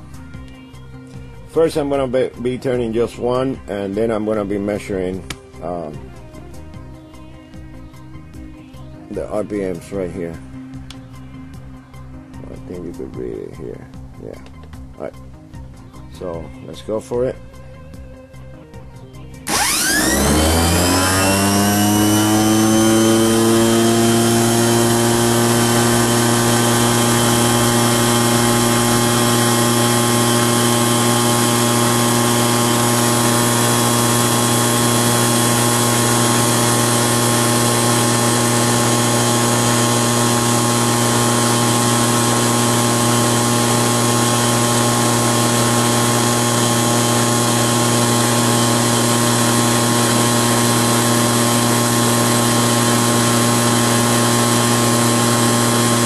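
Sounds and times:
electric motor whine: 19.4s - 56.0s.

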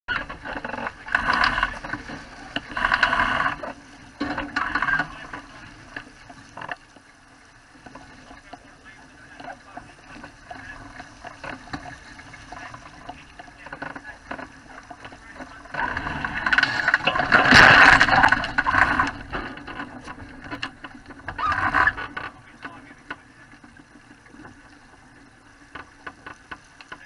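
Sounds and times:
water splashing against hull: 0.1s - 27.0s
small knocks and clicks: 16.4s - 27.0s.

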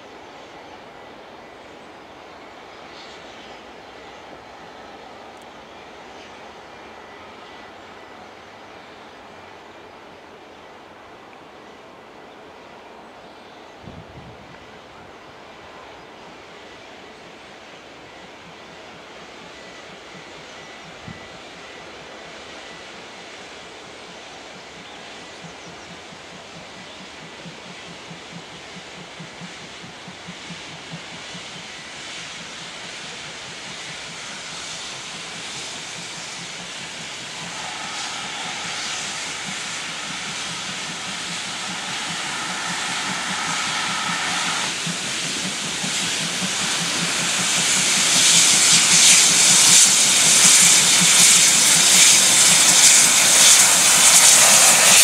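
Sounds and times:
steam locomotive exhaust beat: 13.8s - 55.0s
steam hissing: 15.4s - 55.0s.

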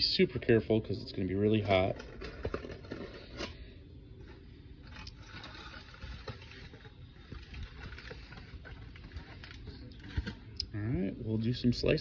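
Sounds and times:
aluminium foil crinkling: 1.3s - 3.6s, 4.2s - 10.6s.

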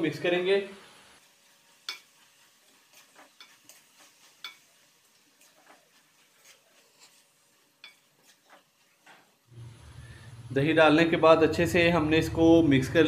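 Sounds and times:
wooden spoon scraping metal wok: 1.5s - 9.4s.

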